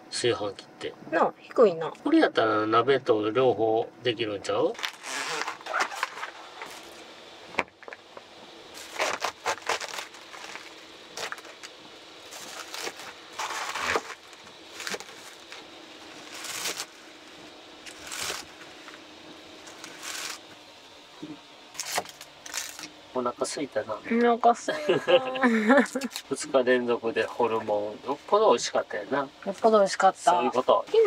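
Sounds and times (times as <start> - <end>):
faint steady hum: 0.0 - 31.0
plastic sheet crinkling: 4.8 - 7.0, 8.8 - 17.0, 17.9 - 18.6, 19.6 - 20.4.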